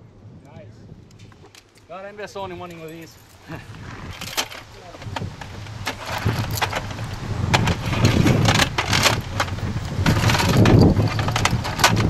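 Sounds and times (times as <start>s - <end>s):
cartridge belt links jangling: 2.6s - 12.0s.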